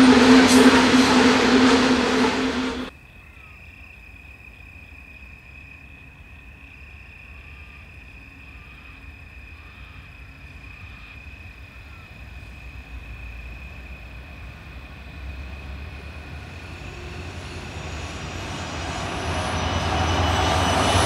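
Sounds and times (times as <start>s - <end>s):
freight train wagons rumbling: 0.0s - 2.9s, 11.5s - 21.0s.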